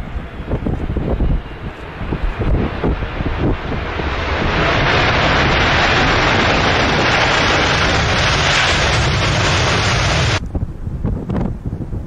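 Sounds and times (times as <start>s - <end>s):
jet engines roaring on runway: 0.0s - 10.6s.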